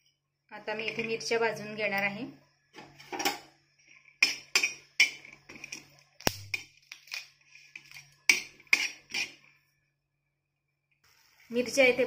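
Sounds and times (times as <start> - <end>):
metal spatula scraping a griddle: 7.4 - 9.6.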